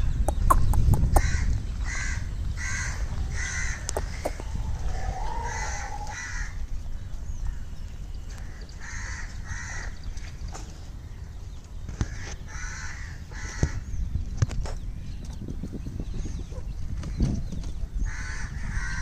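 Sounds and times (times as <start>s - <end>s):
low rumble: 0.0s - 8.4s
crows cawing: 1.2s - 6.6s, 8.3s - 10.0s, 12.0s - 13.8s, 18.1s - 19.0s.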